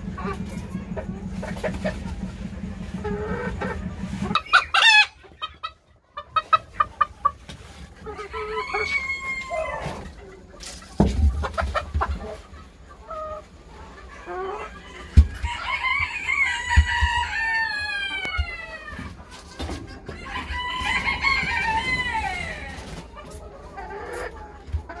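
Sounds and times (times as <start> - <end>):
hens clucking: 0.0 - 25.0
rooster crowing: 8.2 - 10.0, 14.8 - 18.9, 20.3 - 22.8.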